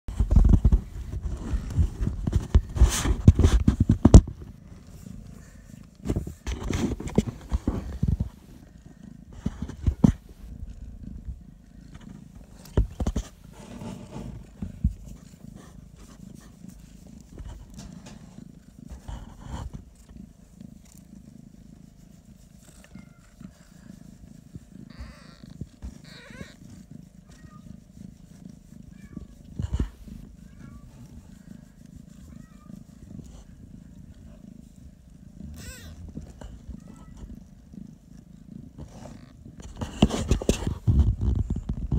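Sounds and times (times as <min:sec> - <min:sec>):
cats purring: 0:00.0 - 0:41.9
faint small squeaks: 0:24.8 - 0:27.8, 0:35.5 - 0:37.4.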